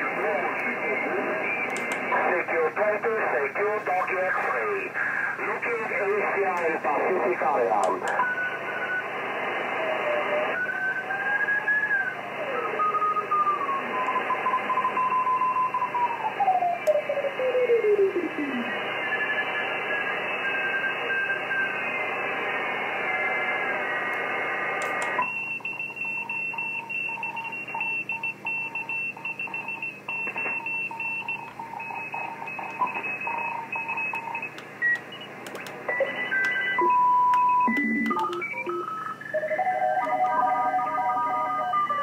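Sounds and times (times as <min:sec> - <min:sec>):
radio hiss with sliding carriers: 0:00.0 - 0:14.0, 0:16.3 - 0:25.2
morse code beeps: 0:25.2 - 0:42.0.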